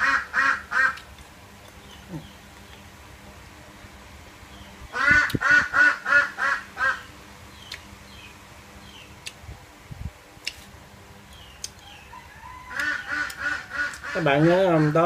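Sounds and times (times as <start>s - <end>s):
duck quacking: 0.0s - 1.0s, 4.9s - 7.1s, 12.7s - 15.0s.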